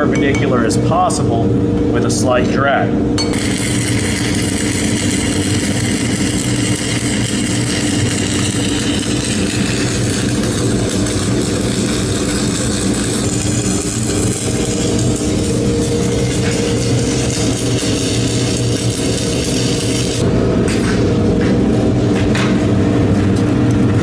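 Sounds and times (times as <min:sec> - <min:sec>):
welding arc crackling: 0:03.2 - 0:20.2.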